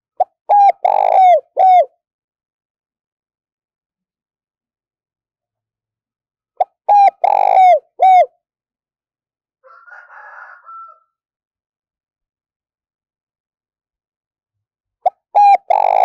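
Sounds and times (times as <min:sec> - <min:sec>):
dove cooing: 0:00.2 - 0:01.9, 0:06.6 - 0:08.3, 0:15.0 - 0:16.0.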